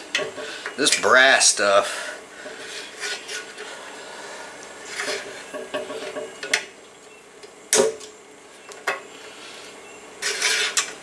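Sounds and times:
wrench scraping on metal fitting: 10.2 - 11.0.

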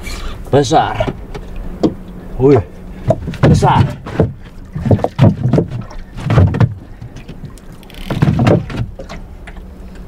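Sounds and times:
steady low hum: 0.0 - 10.0
water washing against hull: 0.0 - 10.0.

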